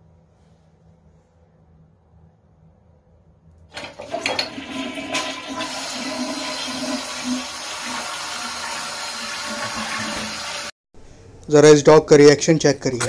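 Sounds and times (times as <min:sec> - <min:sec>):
toilet flush clicks: 0:03.7 - 0:10.7
toilet water rushing: 0:03.7 - 0:10.7.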